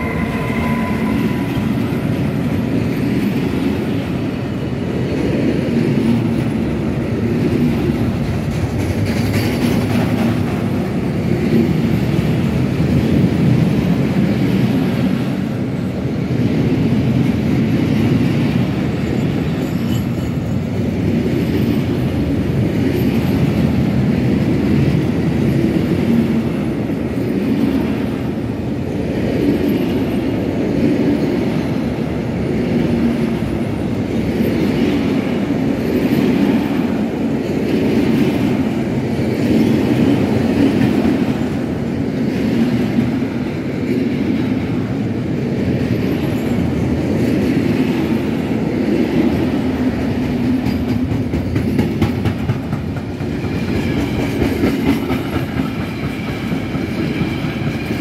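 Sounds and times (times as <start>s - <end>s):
high wheel squeal: 0.0s - 2.6s
train wheels rumbling on rail: 0.0s - 58.0s
wheels clickety-clack: 5.0s - 15.5s, 29.2s - 45.0s, 45.6s - 58.0s.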